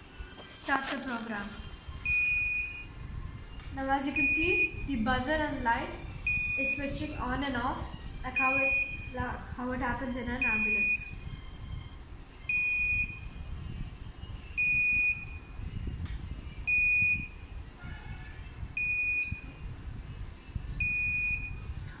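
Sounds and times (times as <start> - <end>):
buzzer beeping high tone: 2.0 - 3.0, 4.1 - 5.1, 6.2 - 7.2, 8.3 - 9.2, 10.4 - 11.2, 12.5 - 13.4, 14.5 - 15.6, 16.7 - 17.6, 18.7 - 19.6, 20.8 - 21.7.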